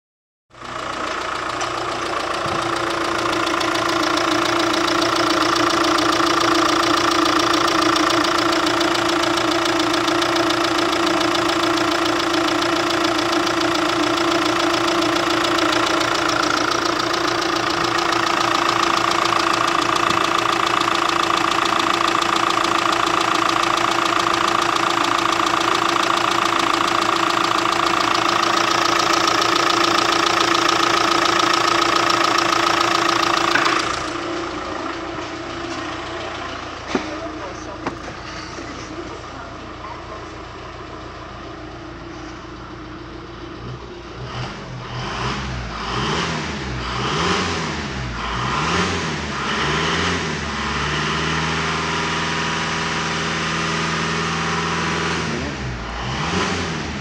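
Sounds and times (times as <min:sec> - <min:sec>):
van diesel engine idling: 0:00.5 - 0:57.0.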